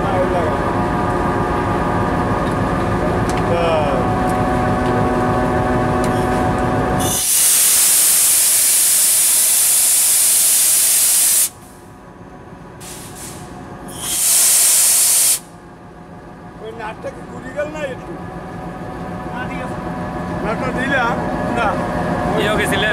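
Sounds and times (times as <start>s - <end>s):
air brake hose hissing: 7.0s - 11.8s, 12.8s - 15.5s
locomotive engine idling: 15.4s - 22.9s.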